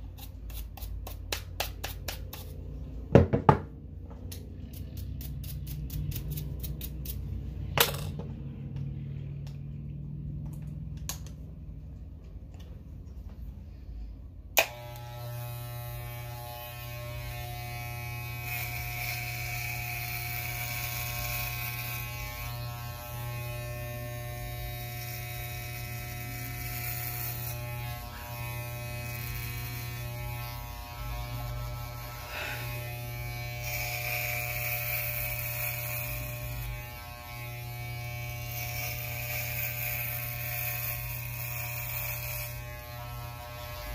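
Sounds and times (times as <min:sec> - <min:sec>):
electric hair clippers buzzing: 0:04.2 - 0:08.8, 0:14.5 - 0:43.9
blades cutting hair hiss: 0:04.3 - 0:07.4, 0:14.6 - 0:43.9.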